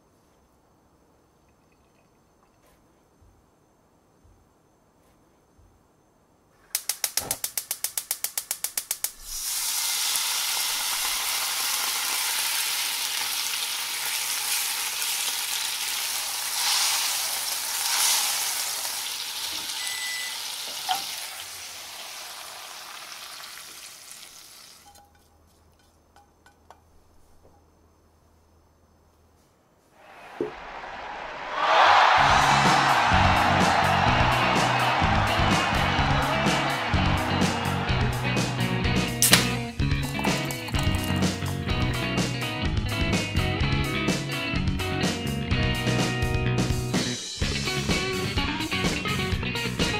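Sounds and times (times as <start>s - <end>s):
gas hob igniter clicking: 6.8s - 9.2s, 39.2s - 39.7s
sauce sizzling in a frying pan: 9.2s - 24.9s
spatula scraping pan: 24.8s - 26.8s.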